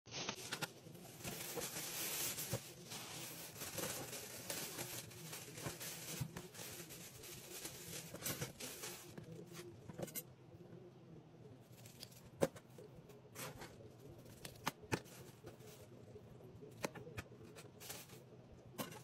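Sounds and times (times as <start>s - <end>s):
plastic bag crinkling: 0.1s - 9.3s.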